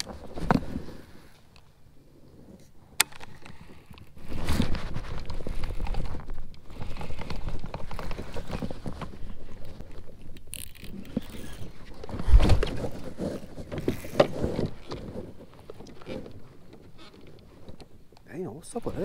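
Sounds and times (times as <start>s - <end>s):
rubbing and knocking against boat: 10.9s - 18.0s.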